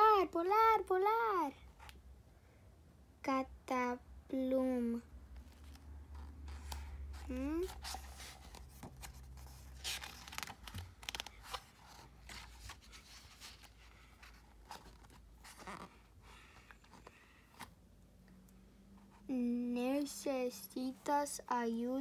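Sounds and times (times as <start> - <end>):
book pages turning: 5.4 - 17.8
paper crinkles: 6.5 - 16.0.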